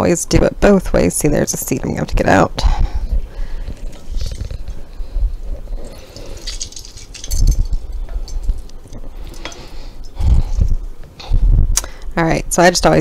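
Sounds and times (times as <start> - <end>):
metal and glass clinks: 5.8 - 8.6.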